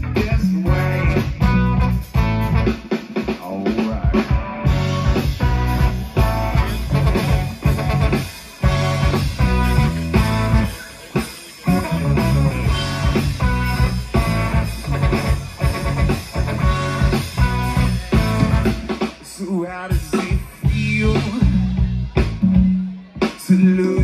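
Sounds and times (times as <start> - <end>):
live rock band playing: 0.0 - 24.0
trombone: 0.6 - 2.8, 4.7 - 10.9, 11.6 - 19.0.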